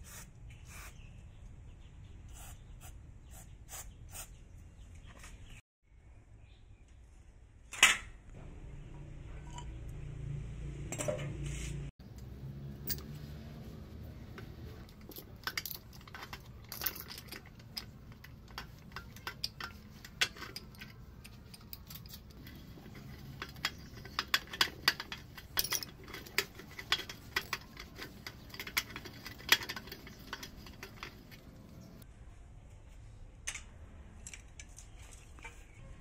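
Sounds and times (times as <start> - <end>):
steel rod clinking on metal: 14.3 - 32.0.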